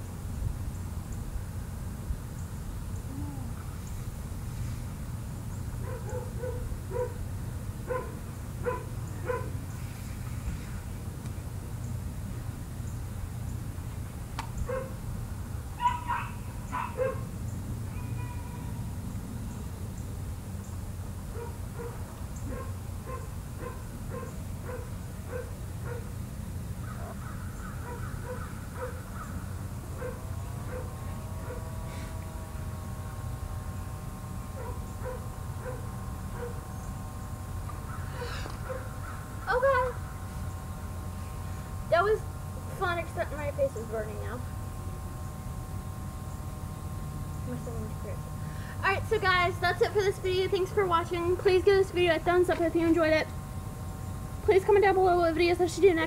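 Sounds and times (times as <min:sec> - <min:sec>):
dog barking: 0:05.8 - 0:07.2, 0:07.9 - 0:09.6, 0:14.7 - 0:15.0, 0:15.8 - 0:17.3, 0:17.9 - 0:18.6, 0:21.3 - 0:26.1, 0:27.8 - 0:29.0, 0:30.0 - 0:31.7, 0:34.6 - 0:36.6, 0:38.6 - 0:38.9
bird calling: 0:15.8 - 0:20.8, 0:26.8 - 0:32.1, 0:37.7 - 0:40.5.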